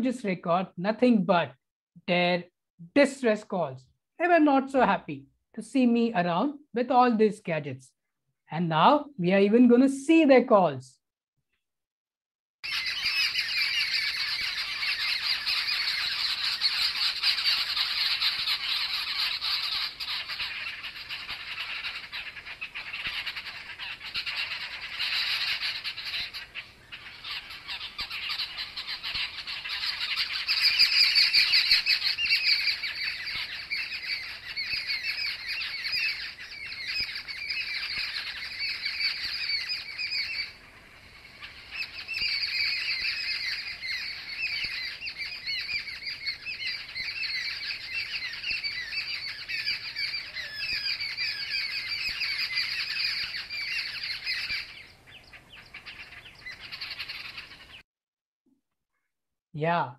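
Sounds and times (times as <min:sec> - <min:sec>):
birds squawking: 0:12.6 - 0:57.8.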